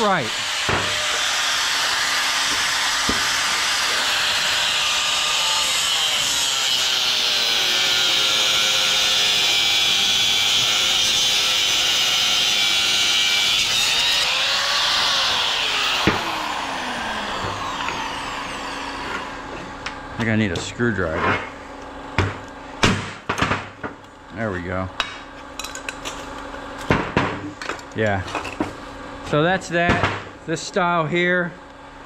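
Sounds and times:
angle grinder cutting steel: 0:00.0 - 0:21.2.

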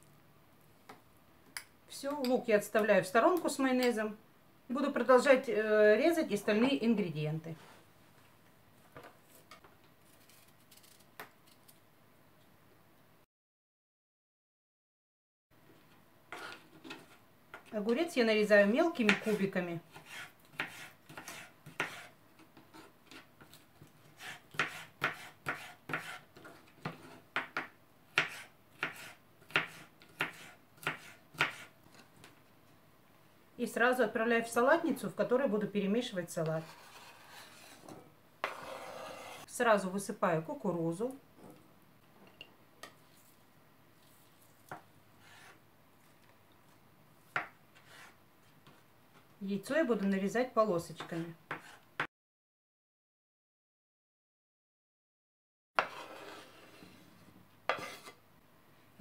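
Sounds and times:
faint knife scraping: 0:16.3 - 0:17.2, 0:19.1 - 0:27.3, 0:36.5 - 0:39.5, 0:44.0 - 0:45.6, 0:47.8 - 0:48.2, 0:55.8 - 0:58.2
knife chopping on wooden board: 0:19.1 - 0:22.1, 0:24.2 - 0:31.7, 0:51.5 - 0:51.8.

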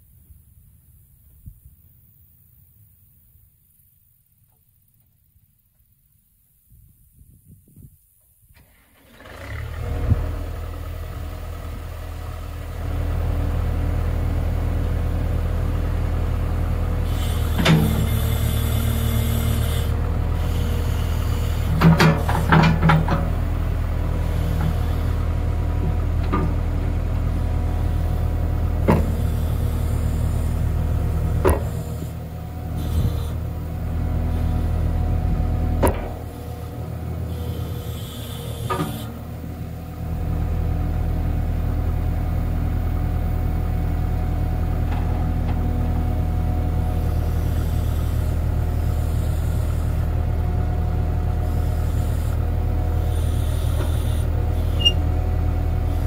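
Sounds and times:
backhoe engine running: 0:08.6 - 0:56.0
metal clanks and knocks: 0:21.8 - 0:23.3.

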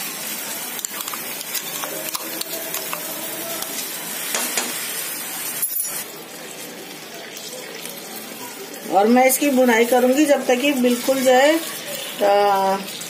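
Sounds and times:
paste sizzling in hot oil: 0:00.0 - 0:13.0
spatula stirring in pan: 0:00.3 - 0:05.0.

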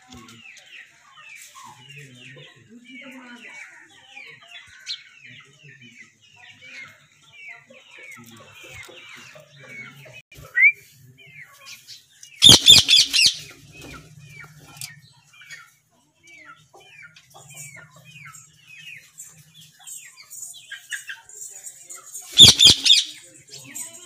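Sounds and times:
loud parakeet calls: 0:12.4 - 0:13.5, 0:22.4 - 0:23.2
parakeets chirping: 0:12.4 - 0:13.5, 0:22.3 - 0:23.2.

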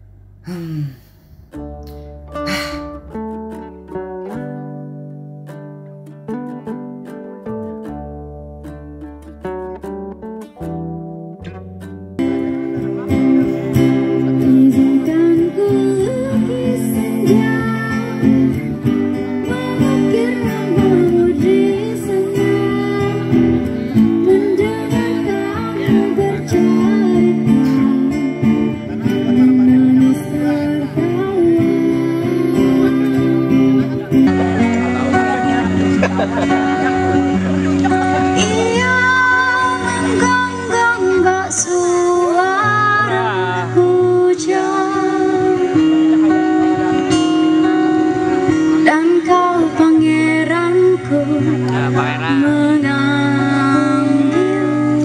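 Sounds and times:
strummed acoustic guitars: 0:00.0 - 0:55.0
woman singing into microphone: 0:13.5 - 0:35.5, 0:37.9 - 0:55.0.

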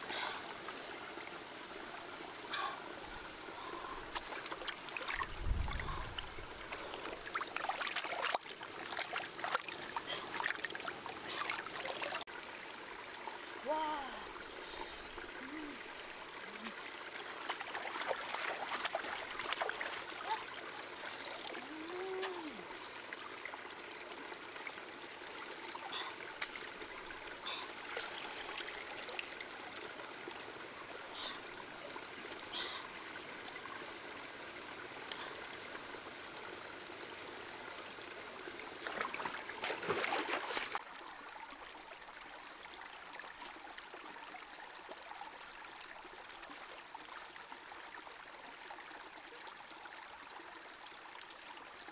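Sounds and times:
stream trickling: 0:00.0 - 0:51.9
hands splashing water: 0:38.8 - 0:40.8.

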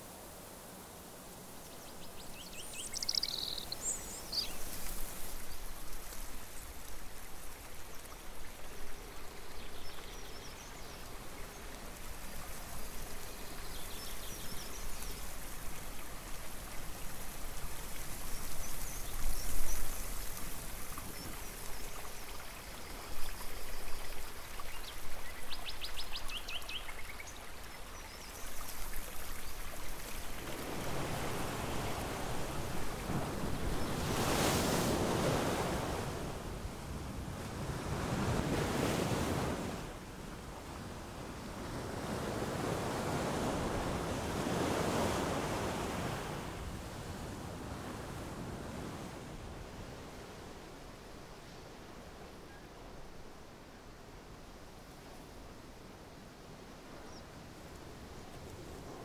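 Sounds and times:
stream trickling: 0:01.2 - 0:36.0
birds chirping: 0:01.8 - 0:04.7
wind and surf rushing: 0:29.4 - 0:51.9.

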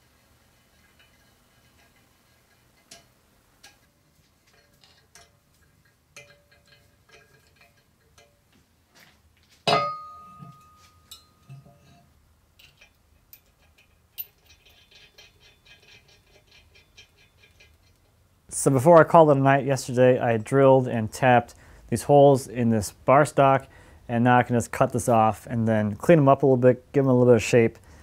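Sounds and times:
metal parts clinking: 0:00.8 - 0:08.4, 0:09.7 - 0:18.1
loud ringing metal clank: 0:09.7 - 0:11.8.

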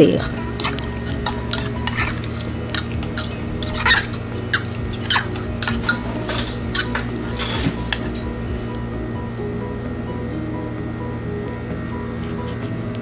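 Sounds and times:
spoon scraping and clinking a pot: 0:00.0 - 0:08.4
low steady hum: 0:00.0 - 0:13.0.

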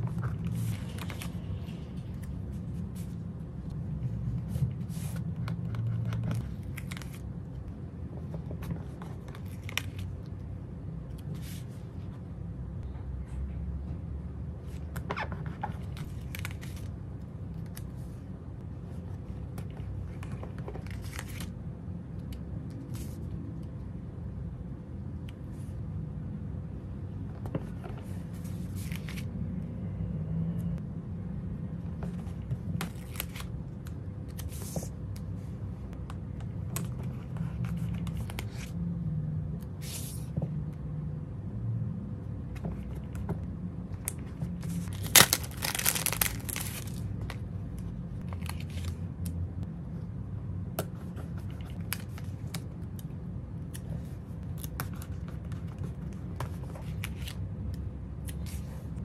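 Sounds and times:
steady low hum: 0:00.0 - 0:59.0
sticker paper rustling: 0:44.2 - 0:47.4.

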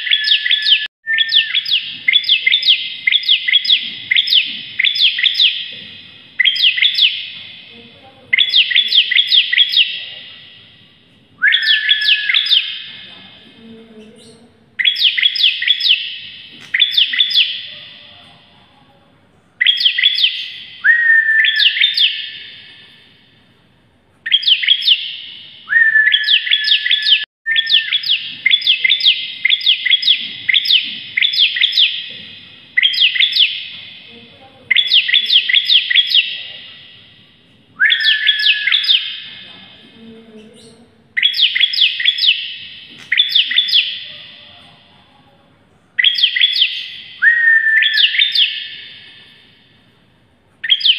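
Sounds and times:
bird singing sharp chipping notes: 0:00.0 - 0:07.6, 0:11.4 - 0:13.0, 0:24.3 - 0:32.2
short steady bird whistle: 0:25.7 - 0:28.0, 0:47.2 - 0:48.2.

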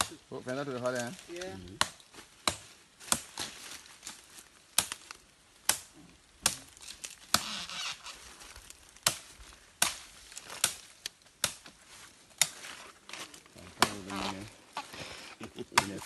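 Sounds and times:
leaves rustling: 0:00.0 - 0:16.0
machete chopping brush: 0:00.8 - 0:07.8, 0:09.0 - 0:11.8, 0:12.4 - 0:14.9, 0:15.7 - 0:16.0.

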